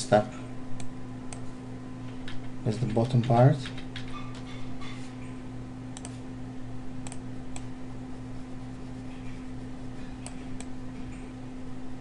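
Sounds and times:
low electrical hum: 0:00.0 - 0:12.0
computer mouse clicks: 0:06.0 - 0:06.2, 0:07.0 - 0:07.7.

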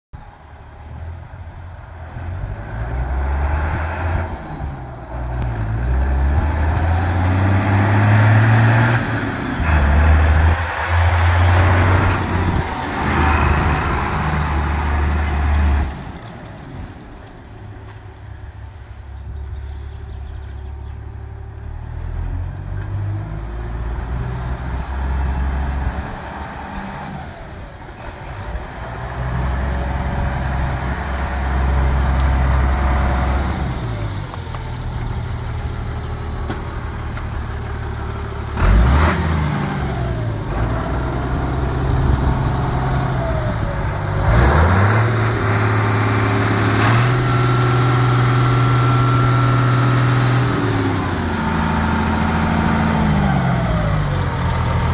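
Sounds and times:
tractor diesel engine revving: 0:01.5 - 0:17.5, 0:21.4 - 0:54.9
thin high whistle: 0:08.9 - 0:16.0, 0:24.6 - 0:27.3, 0:50.4 - 0:53.4.

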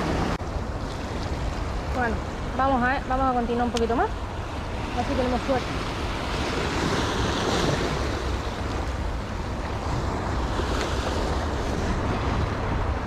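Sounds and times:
sea surf washing over rocks: 0:00.0 - 0:13.0.

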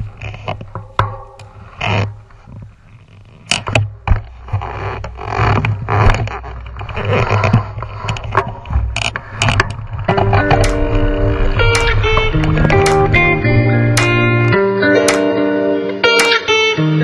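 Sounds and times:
bike rattling over bumps: 0:00.0 - 0:14.6
low rumble: 0:06.7 - 0:14.6
guitar music: 0:09.8 - 0:17.0.

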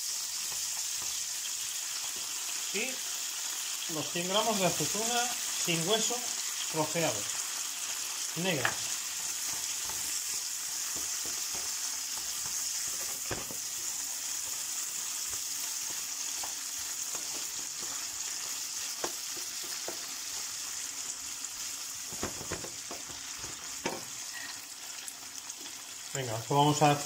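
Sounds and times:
oil sizzling in a frying pan: 0:00.0 - 0:27.0
wooden spoon knocking a pan: 0:08.5 - 0:14.4, 0:15.1 - 0:20.6, 0:22.0 - 0:24.2.

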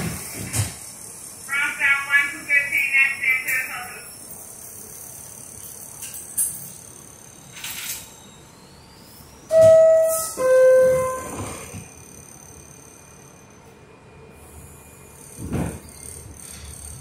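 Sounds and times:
two-tone door chime: 0:09.5 - 0:11.9.

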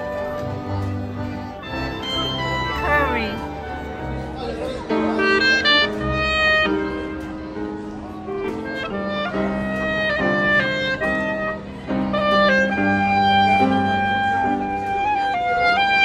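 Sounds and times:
clarinet melody: 0:00.0 - 0:16.0
double bass: 0:00.0 - 0:16.0
grand piano: 0:00.0 - 0:16.0.

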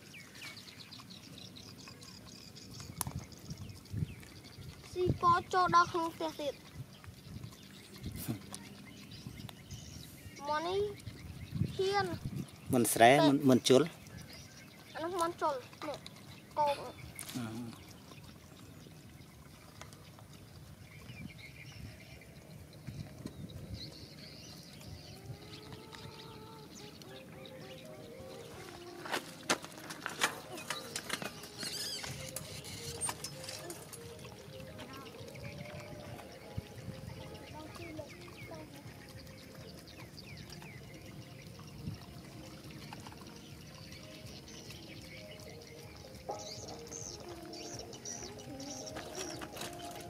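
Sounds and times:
dogs lapping and chewing: 0:00.0 - 0:50.0
faint bird calls: 0:25.0 - 0:38.6.

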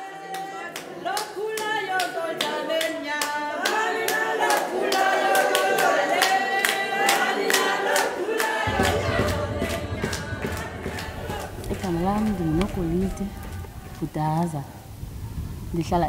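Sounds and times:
rhythmic hand clapping: 0:00.0 - 0:14.5
group of voices singing: 0:00.0 - 0:14.8
low rumble: 0:08.7 - 0:16.0.

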